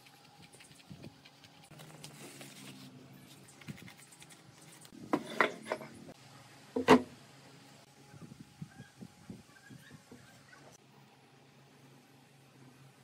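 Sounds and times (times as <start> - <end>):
paper scratching and rustling: 0.0 - 5.0.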